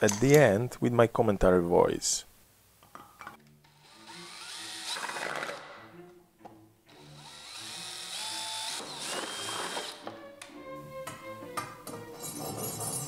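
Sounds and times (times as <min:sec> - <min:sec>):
power drill boring through plastic: 0:03.7 - 0:05.6, 0:06.9 - 0:10.1.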